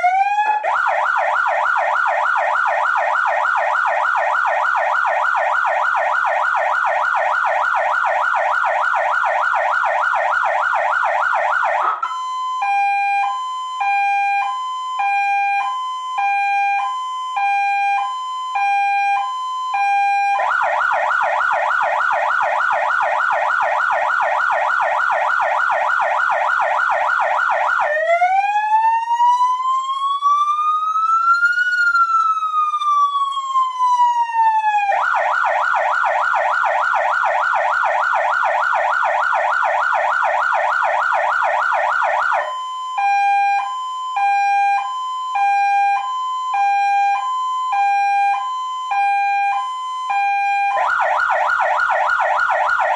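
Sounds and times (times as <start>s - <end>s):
electronic police siren: 0.0s - 52.9s.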